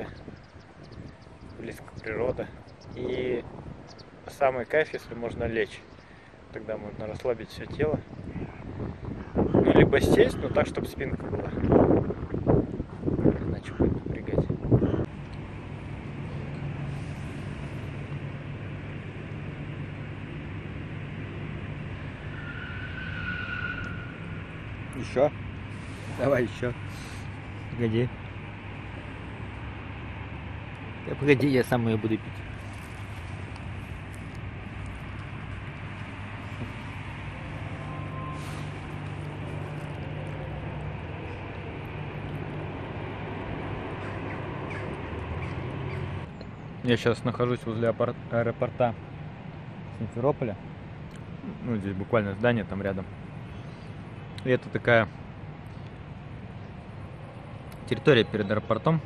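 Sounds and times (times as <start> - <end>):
rushing background noise: 0.0 - 59.0
low mechanical hum: 11.3 - 47.0
high-pitched tone: 37.3 - 40.6.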